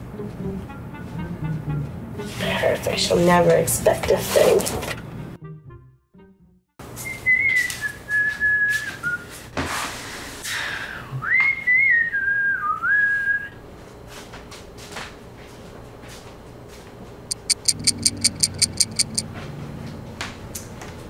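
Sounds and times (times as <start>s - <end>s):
woman whistling a tune: 7.0s - 9.3s, 11.2s - 13.6s.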